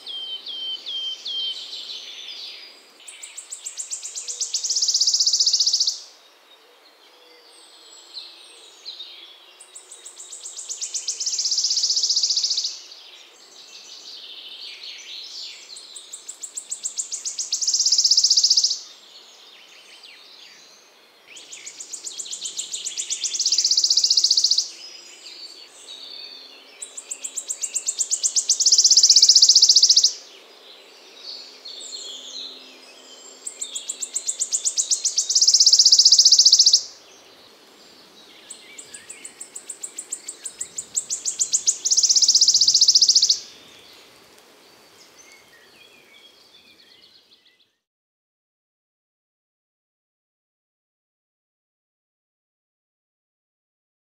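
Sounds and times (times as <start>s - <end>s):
bird song with ticking trill: 0.0s - 6.0s, 8.1s - 13.8s, 14.8s - 19.0s, 19.7s - 37.3s, 37.9s - 44.1s
other birds calling faintly: 0.0s - 47.9s.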